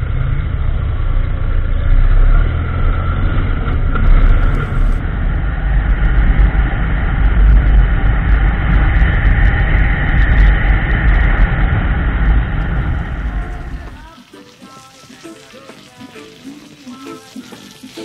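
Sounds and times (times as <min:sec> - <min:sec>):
motorcycle engine rumble: 0:00.0 - 0:14.2
heavy wind noise: 0:02.4 - 0:14.0.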